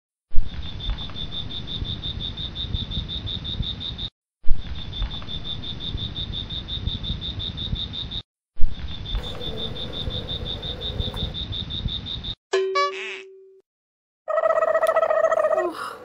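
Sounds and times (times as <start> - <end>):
crickets chirping: 0.5 - 8.2, 8.8 - 12.4.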